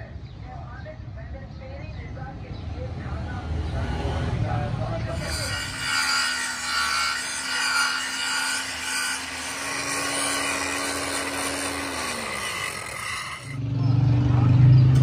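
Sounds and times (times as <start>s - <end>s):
angle grinder grinding steel: 5.1s - 13.6s.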